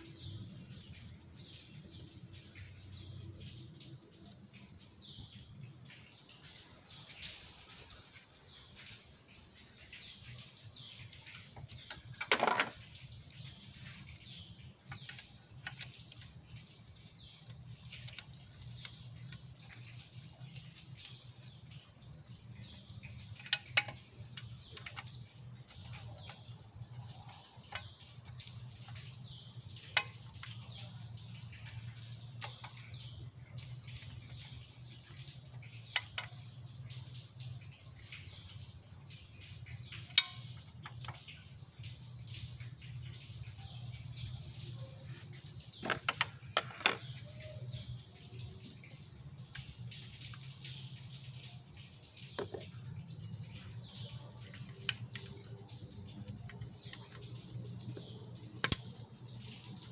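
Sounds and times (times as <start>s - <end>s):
metal clicks of bolts and tool: 11.8s - 12.9s.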